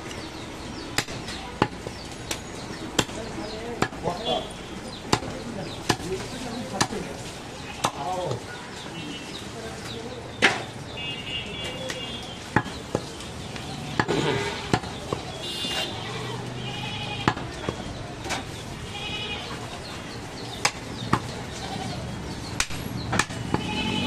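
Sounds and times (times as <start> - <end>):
cleaver chopping meat and bone: 0.9 - 2.0, 2.9 - 4.2, 5.0 - 7.1, 11.9 - 13.1, 13.9 - 15.8, 17.2 - 18.4, 20.6 - 21.4, 22.6 - 23.8
goats bleating: 15.9 - 17.3.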